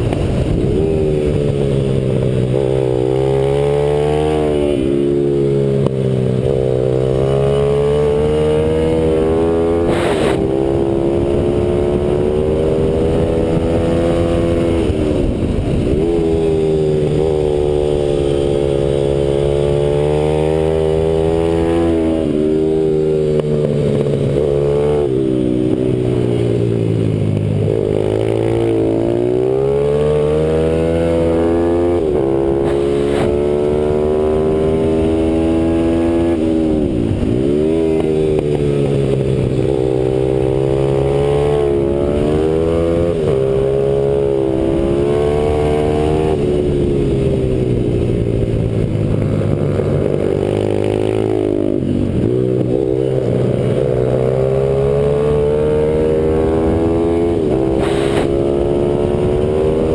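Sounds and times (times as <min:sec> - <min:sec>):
motorbike engine revving: 0:00.0 - 0:59.9.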